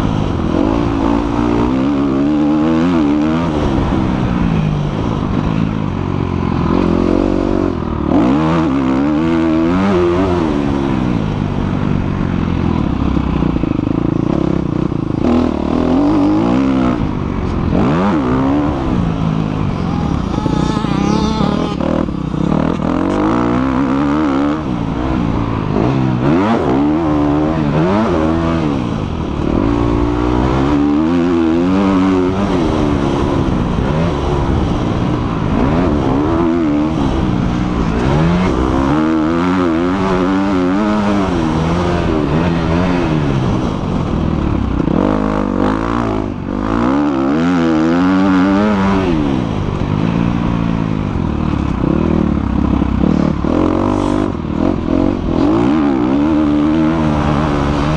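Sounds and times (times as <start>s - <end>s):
motocross bike engine revving: 6.5s - 11.4s, 13.1s - 44.0s, 51.6s - 57.9s.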